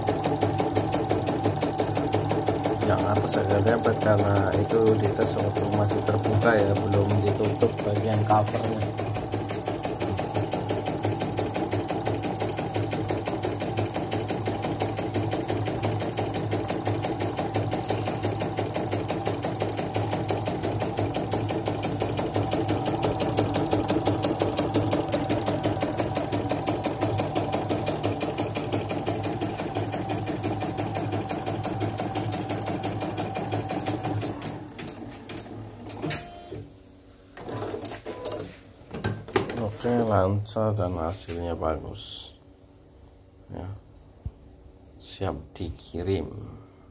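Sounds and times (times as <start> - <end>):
embroidery machine stitching: 0.0 - 36.3, 37.4 - 38.4.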